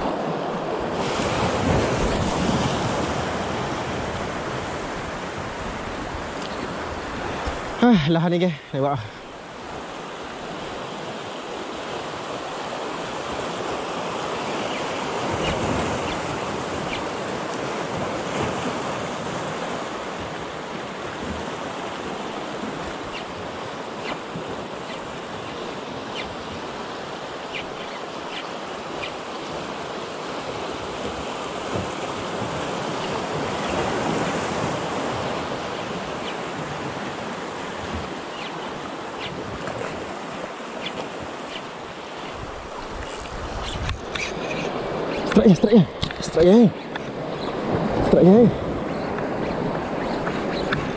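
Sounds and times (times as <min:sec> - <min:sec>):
sea water rushing: 0:00.0 - 0:50.9
wind on microphone: 0:42.3 - 0:45.4, 0:47.0 - 0:50.9.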